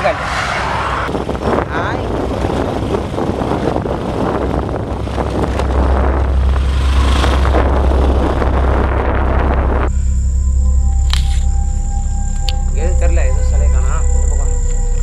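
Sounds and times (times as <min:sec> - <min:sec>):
microphone handling rumble: 0:00.0 - 0:15.0
rustling and crackling undergrowth: 0:01.1 - 0:09.9.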